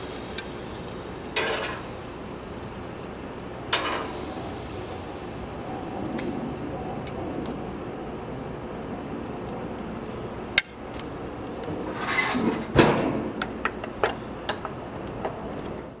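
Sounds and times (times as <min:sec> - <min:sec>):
grill lid scraping: 0:01.3 - 0:02.0, 0:03.7 - 0:05.2, 0:11.7 - 0:13.4
heavy clanking thump: 0:12.4 - 0:13.4.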